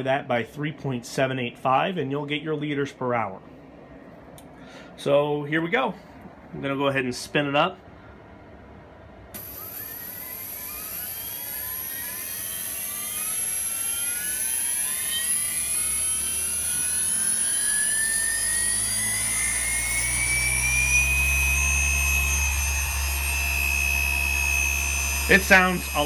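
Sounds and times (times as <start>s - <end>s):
electric motor whine: 9.4s - 26.0s.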